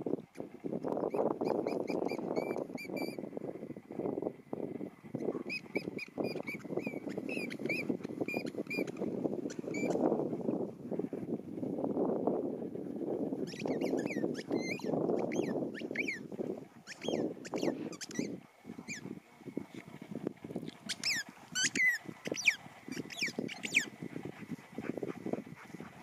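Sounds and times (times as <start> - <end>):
squeaky ball squeaks: 5.5 - 8.9, 9.5 - 10.0, 13.4 - 16.2, 16.9 - 19.0, 20.9 - 23.9.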